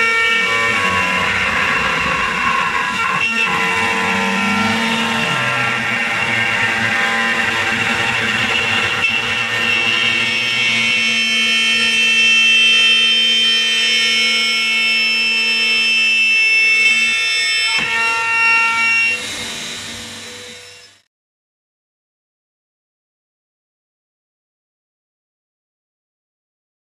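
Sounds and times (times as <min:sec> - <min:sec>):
router spindle whining: 0:00.0 - 0:21.1.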